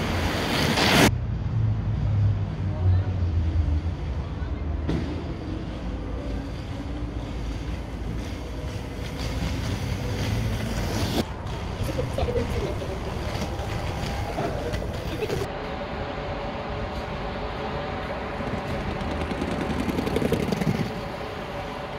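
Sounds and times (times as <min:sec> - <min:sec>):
skate wheels rolling on stone: 0:05.4 - 0:15.5, 0:18.0 - 0:21.9.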